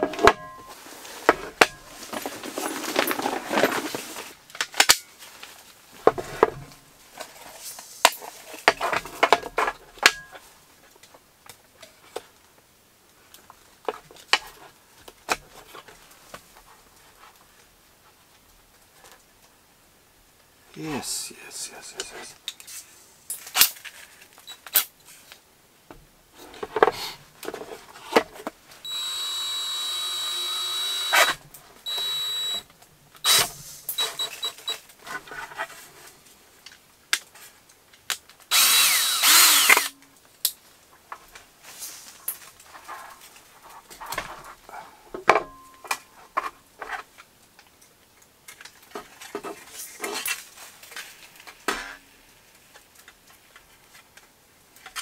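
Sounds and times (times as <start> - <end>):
cordless drill whining: 28.8 - 32.6, 33.2 - 34.8, 38.5 - 39.9
drill bit boring through plastic: 28.8 - 32.6, 33.2 - 34.7, 38.5 - 39.9.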